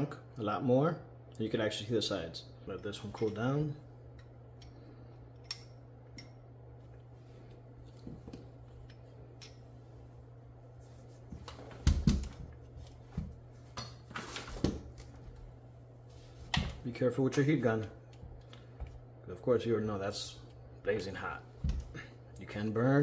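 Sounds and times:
faint low hum: 0.0s - 23.0s
light clicks of tools: 4.1s - 6.4s.

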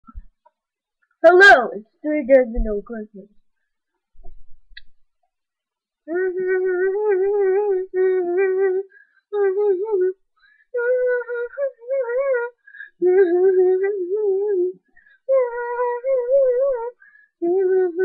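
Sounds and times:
child singing wordless notes: 13.1s - 18.0s.

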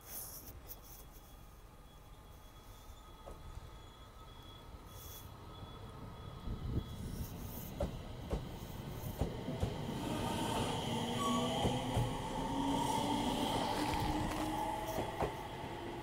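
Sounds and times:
electric train motor whine: 9.9s - 16.0s.

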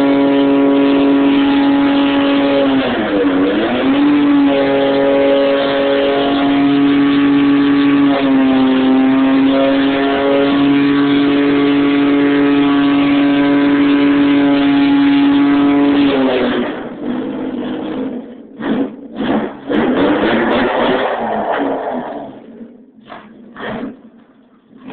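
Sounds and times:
car engine revving high: 0.0s - 24.9s.

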